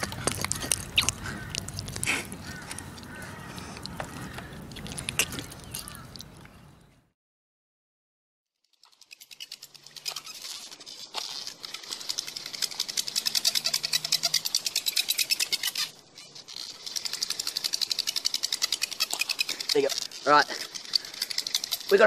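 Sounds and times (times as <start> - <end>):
hand drill rasping on fireboard: 8.8 - 22.0.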